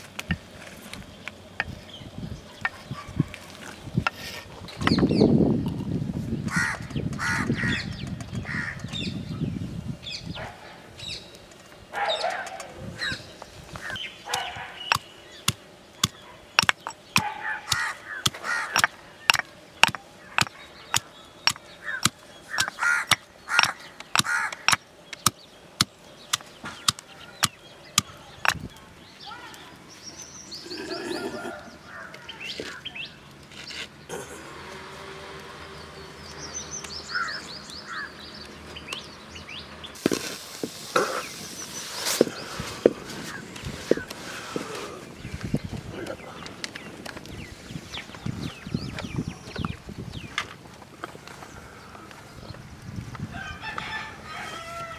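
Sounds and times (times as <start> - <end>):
crows cawing: 6.5 - 8.8, 17.2 - 19.0, 21.8 - 24.8, 30.7 - 32.8, 37.1 - 38.2
pestle pounding in stone mortar: 16.0 - 25.9.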